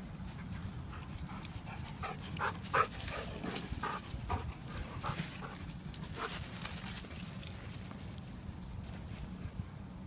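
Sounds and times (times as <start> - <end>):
dog panting: 0.4 - 6.4.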